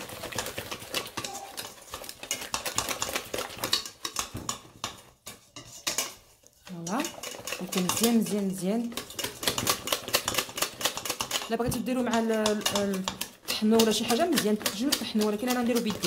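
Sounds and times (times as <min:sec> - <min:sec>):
dough scraping in metal bowl: 0:00.0 - 0:16.0.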